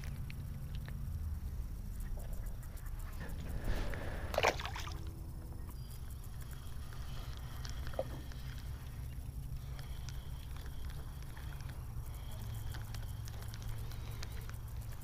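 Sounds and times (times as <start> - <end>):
wind rumble on microphone: 0.0 - 15.0
water splash: 4.3 - 5.0.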